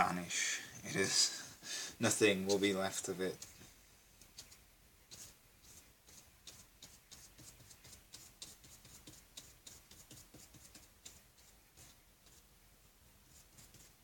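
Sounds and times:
paintbrush tapping on paper: 6.1s - 12.4s.

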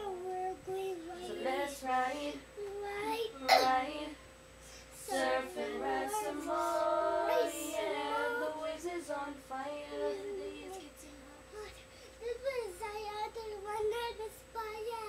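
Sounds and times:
child singing: 0.0s - 4.2s, 5.0s - 15.0s.

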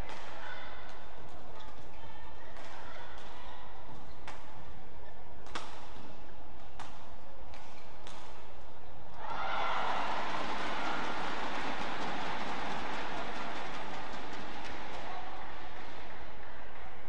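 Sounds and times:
sports hall noise: 0.0s - 17.0s
badminton rackets hitting shuttlecock: 5.4s - 6.0s, 6.6s - 8.5s.

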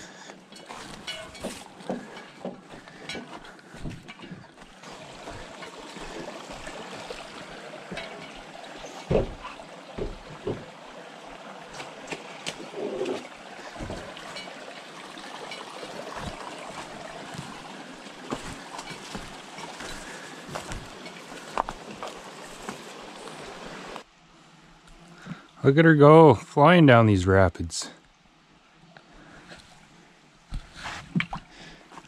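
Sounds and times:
creek trickling among rocks: 0.0s - 24.1s.

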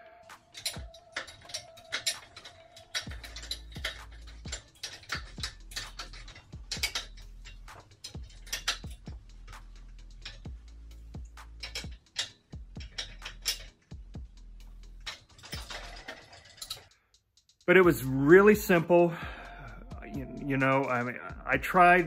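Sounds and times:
ticking percussion beat: 3.0s - 13.3s, 17.5s - 22.0s
low bass line: 17.9s - 22.0s.

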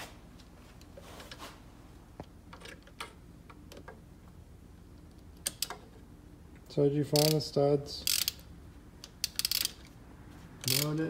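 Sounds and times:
socket wrench clicking: 5.4s - 5.8s, 7.2s - 7.4s, 8.0s - 9.9s, 10.6s - 11.0s.

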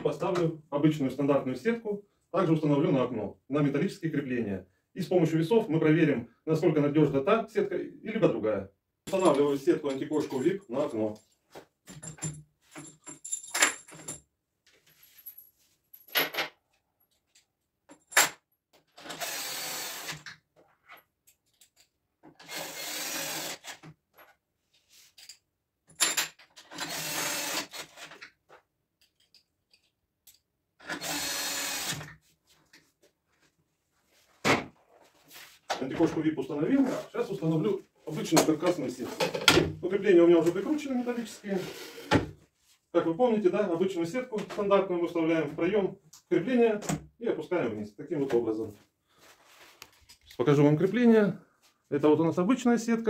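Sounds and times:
cordless screwdriver running: 19.0s - 20.2s, 22.4s - 23.7s, 26.8s - 27.9s, 30.9s - 32.0s.

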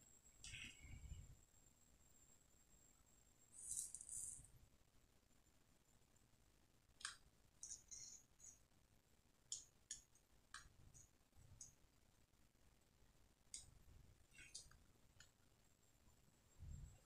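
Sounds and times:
faint clicks and ticks: 6.9s - 8.7s, 9.4s - 12.1s, 13.4s - 15.6s.

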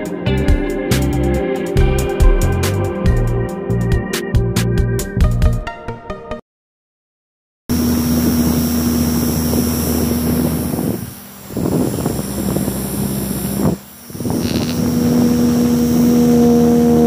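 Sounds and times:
small motors whirring: 7.7s - 17.0s.

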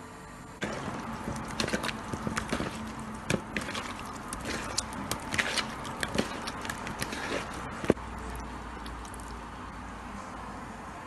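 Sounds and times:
hand kneading fish in marinade: 0.6s - 9.4s.

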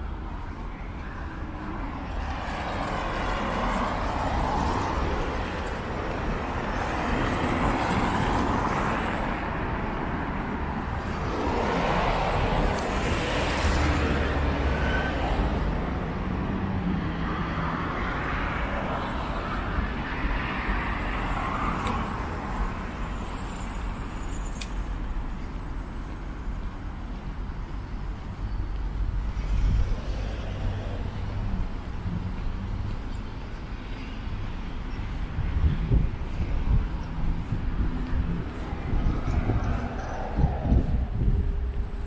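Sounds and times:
road traffic: 0.0s - 42.0s.

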